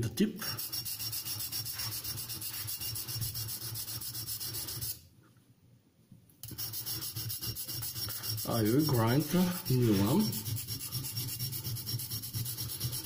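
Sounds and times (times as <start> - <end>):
knife blade scraping on whetstone: 6.4 - 13.0.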